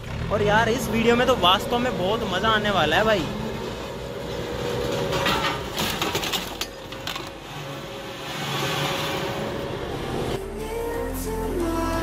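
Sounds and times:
road roller diesel engine running: 0:00.0 - 0:10.7
clattering knocks: 0:03.4 - 0:07.4.

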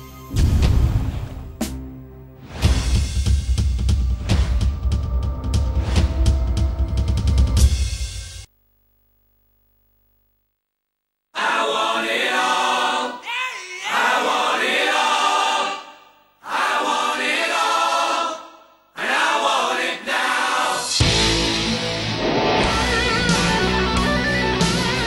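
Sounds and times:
choir singing: 0:11.4 - 0:21.2.

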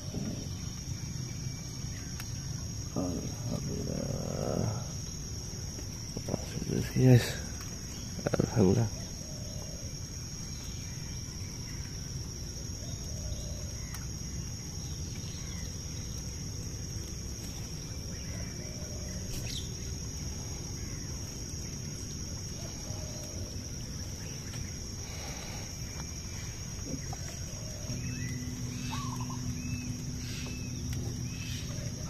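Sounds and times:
high-pitched insect chorus: 0:00.0 - 0:32.0
low steady rumble: 0:10.0 - 0:32.0
short bird calls: 0:25.0 - 0:32.0.

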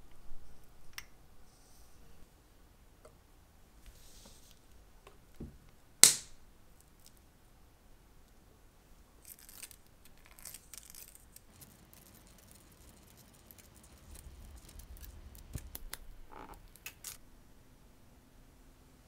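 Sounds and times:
small clicks and scratching: 0:09.2 - 0:17.2
low rumble: 0:13.6 - 0:16.8.

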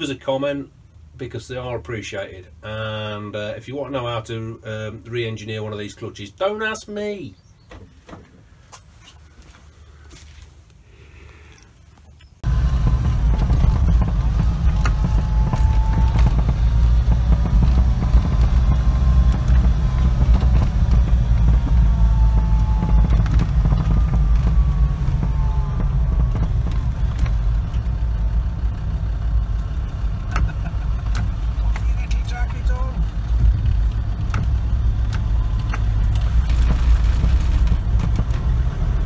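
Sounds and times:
vehicle engine and road rumble: 0:00.0 - 0:39.0
faint whine varying in pitch: 0:12.4 - 0:30.3.

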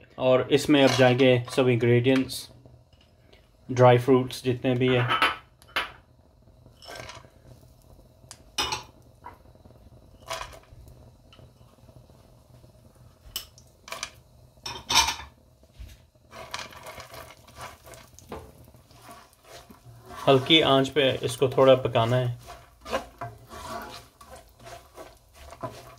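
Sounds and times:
spatula scraping pan: 0:00.6 - 0:01.6, 0:16.3 - 0:25.9.

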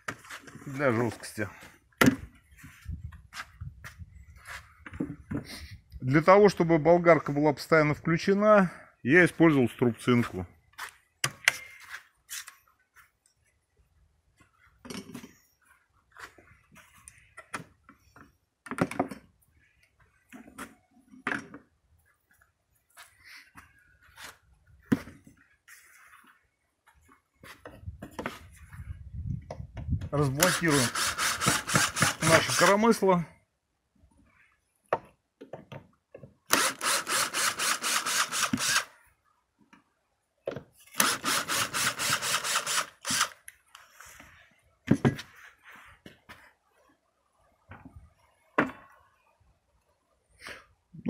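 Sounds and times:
cordless drill rasping: 0:30.4 - 0:32.8, 0:36.5 - 0:39.0, 0:40.9 - 0:43.4.

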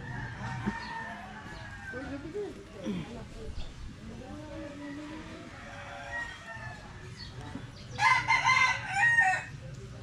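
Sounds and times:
rooster crowing: 0:00.0 - 0:02.2, 0:04.7 - 0:07.1, 0:08.0 - 0:09.5.

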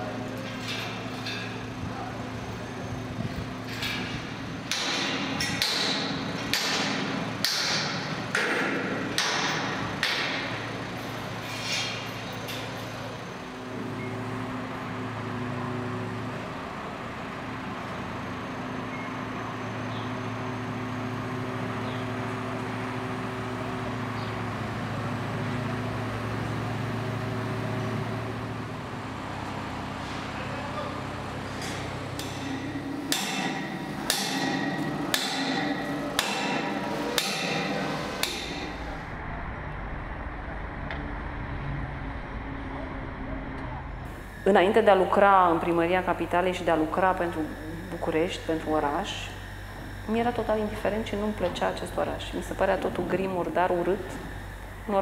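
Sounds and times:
engine droning: 0:00.0 - 0:55.0
metal clanks with ringing: 0:00.4 - 0:01.8, 0:31.6 - 0:38.8.

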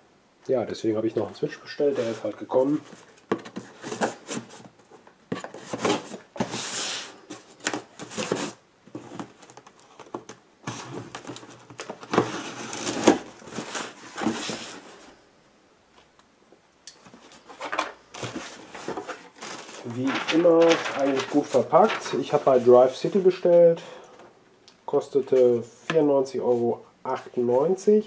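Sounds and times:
cardboard rustling and scraping: 0:01.8 - 0:15.2, 0:17.1 - 0:23.7.

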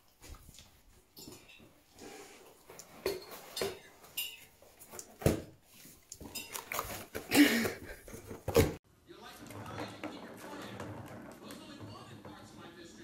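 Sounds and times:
cardboard and paper rustling: 0:05.0 - 0:08.8.

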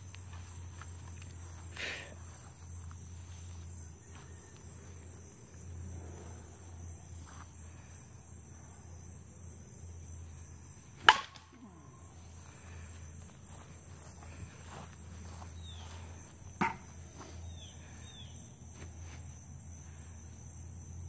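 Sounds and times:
bat hitting ball: 0:11.0 - 0:11.6, 0:16.6 - 0:16.9.

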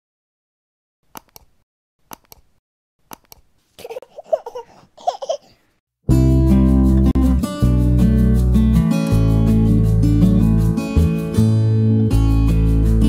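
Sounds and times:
baby babbling and giggling: 0:03.8 - 0:05.6.

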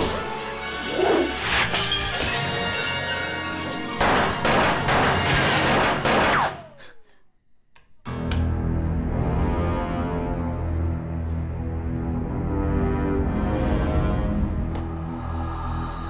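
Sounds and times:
dramatic music: 0:00.0 - 0:06.7, 0:08.1 - 0:16.0
glass shattering: 0:01.6 - 0:03.3
pistol shot: 0:04.0 - 0:06.7.

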